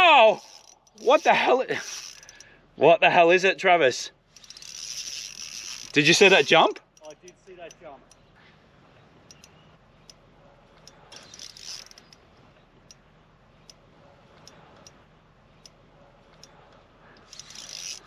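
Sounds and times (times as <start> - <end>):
fishing reel ticking: 0.0 - 2.5, 4.3 - 8.2, 10.8 - 12.2, 17.2 - 18.0.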